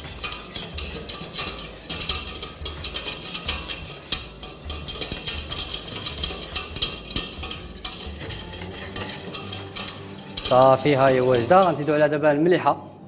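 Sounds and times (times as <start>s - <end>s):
whisk beating in metal saucepan: 0.0s - 12.1s.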